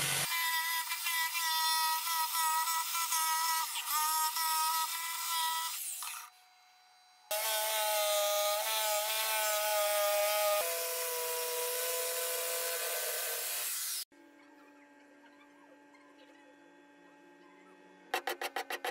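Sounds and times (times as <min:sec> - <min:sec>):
power tool cutting wood: 0:00.0 - 0:06.4, 0:07.3 - 0:14.1.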